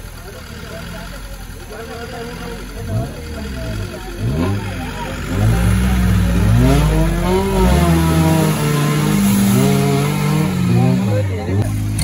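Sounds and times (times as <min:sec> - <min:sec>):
engine revving hard: 0:02.4 - 0:12.0.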